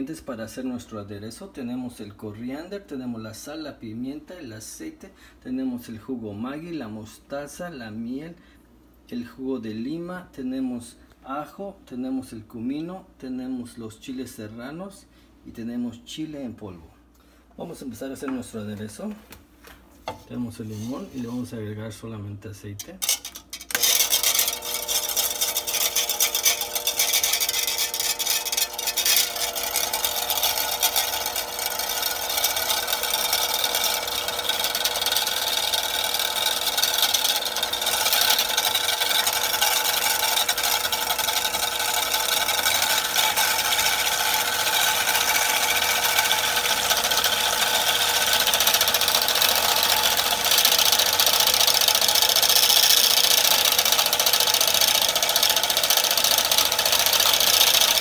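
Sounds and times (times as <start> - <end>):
electric stand mixer whisking: 23.7 - 58.0.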